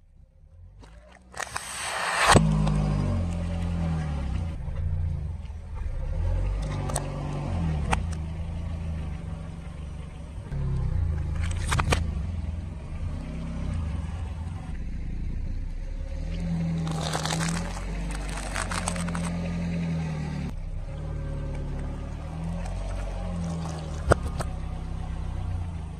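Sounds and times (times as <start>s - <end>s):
car engine running: 0.1s - 25.9s
sharp cracks and pops: 0.8s - 3.6s, 10.7s - 12.2s, 16.3s - 19.6s, 21.5s - 24.6s
tyre crunching small objects: 16.4s - 19.8s, 22.2s - 24.6s.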